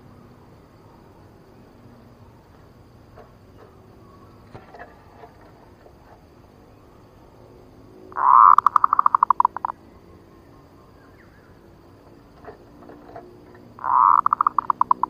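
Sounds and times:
dove cooing: 0:08.1 - 0:09.8, 0:12.1 - 0:15.0.

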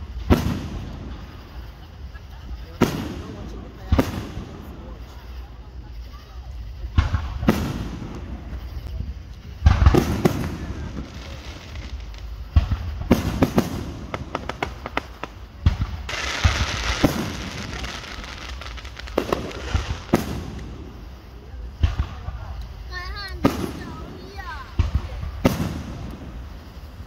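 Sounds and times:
firework shells booming: 0:00.0 - 0:05.3, 0:06.7 - 0:27.0
firework crackling: 0:00.0 - 0:27.0
quick firework pops: 0:06.9 - 0:20.9, 0:21.7 - 0:26.9.

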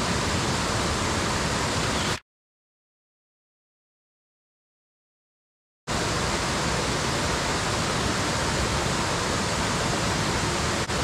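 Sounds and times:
waterfall rushing: 0:00.0 - 0:02.2, 0:05.9 - 0:11.0.

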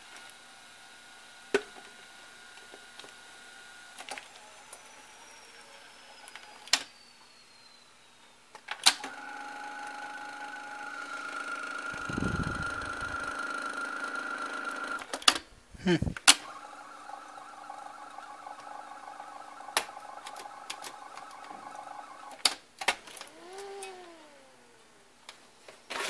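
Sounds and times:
motor whine: 0:09.0 - 0:15.2, 0:15.8 - 0:25.6
vcr mechanism clicking: 0:16.2 - 0:25.4.

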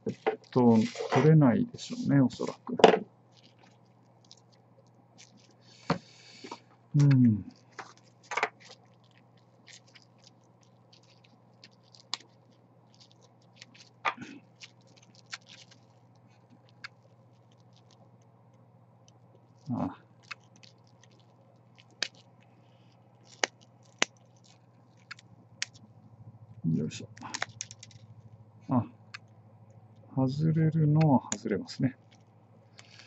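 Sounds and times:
low steady hum: 0:00.0 - 0:33.0
plastic pieces cracking off: 0:07.0 - 0:18.0, 0:19.4 - 0:22.5, 0:23.2 - 0:25.8, 0:27.2 - 0:28.1.

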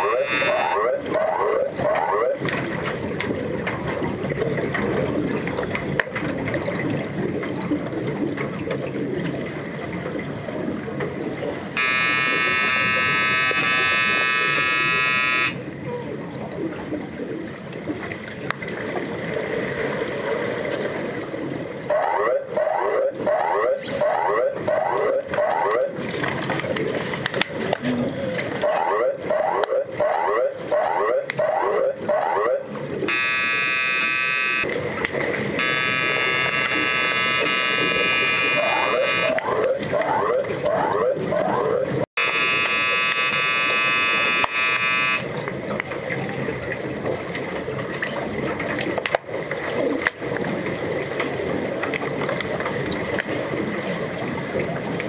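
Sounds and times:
underwater buzzer tone: 0:00.0 - 0:01.1, 0:11.8 - 0:15.8, 0:33.1 - 0:34.8, 0:35.6 - 0:39.5, 0:42.2 - 0:45.5
underwater churning and splashing: 0:00.0 - 0:55.0.

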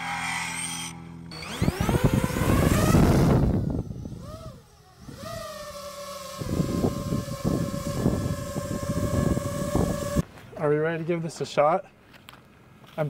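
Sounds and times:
drone propellers buzzing: 0:00.0 - 0:10.2.

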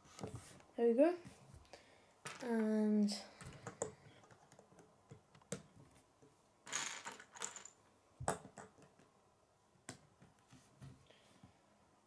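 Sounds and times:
plastic pieces rattling: 0:06.7 - 0:07.8.

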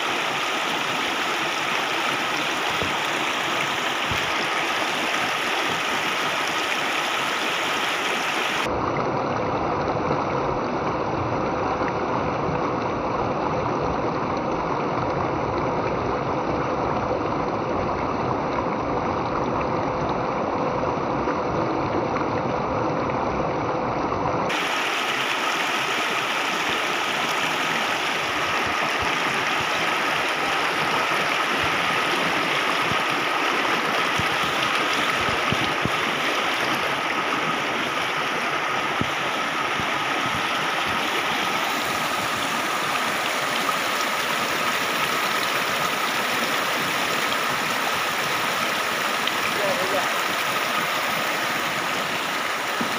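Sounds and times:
stream splashing over stones: 0:00.0 - 0:09.2, 0:24.5 - 0:52.9.

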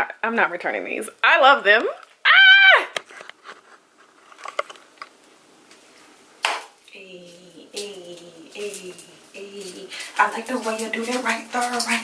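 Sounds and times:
woman humming: 0:06.9 - 0:10.8.

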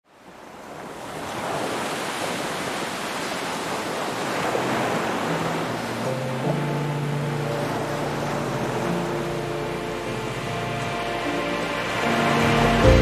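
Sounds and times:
ocean surf rushing: 0:00.1 - 0:13.0
music notes: 0:05.3 - 0:13.0.

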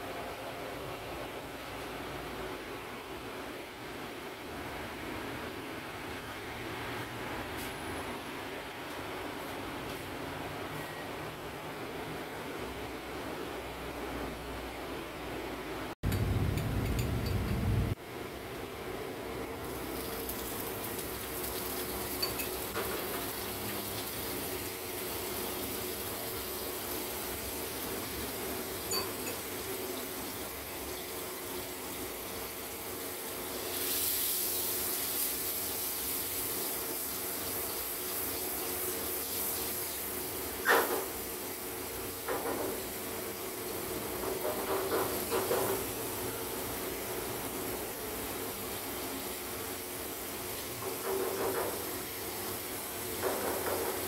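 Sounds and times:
steady background hum: 0:00.0 - 0:20.3
butter sizzling in a frying pan: 0:19.6 - 0:54.0.

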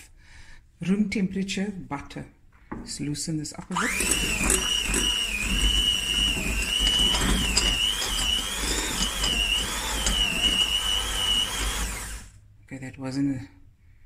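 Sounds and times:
electric hand mixer whining: 0:03.7 - 0:12.3.

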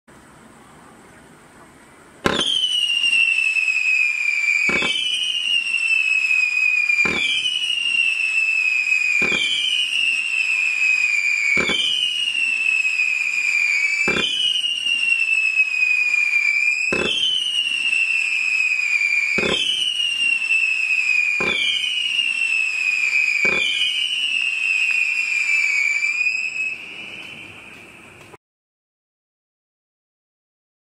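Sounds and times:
firework pops: 0:02.2 - 0:03.4, 0:04.6 - 0:05.2, 0:06.8 - 0:08.0, 0:08.9 - 0:15.1, 0:16.9 - 0:17.8, 0:19.3 - 0:20.4, 0:21.2 - 0:22.0, 0:23.0 - 0:24.2, 0:26.8 - 0:28.4
shrill firework whistle: 0:02.2 - 0:28.4.

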